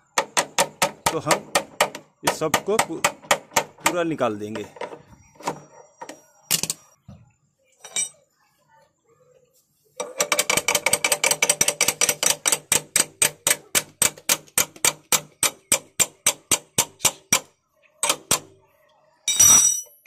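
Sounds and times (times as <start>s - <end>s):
spanner tapping on metal axle: 10.0s - 18.5s.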